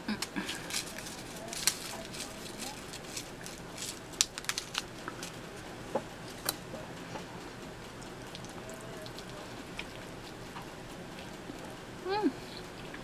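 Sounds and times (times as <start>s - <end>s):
chewing pizza: 0.2s - 13.0s
pepper flakes shaken from packet: 0.5s - 5.4s.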